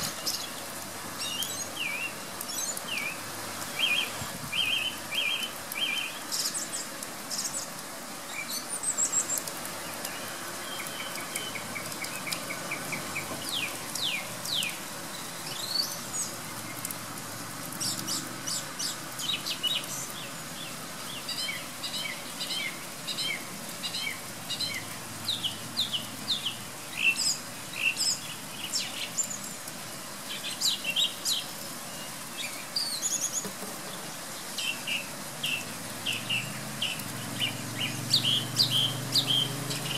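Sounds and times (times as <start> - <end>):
song thrush singing: 0.0 - 17.0, 17.7 - 39.9
pouring rain hiss: 0.0 - 39.9.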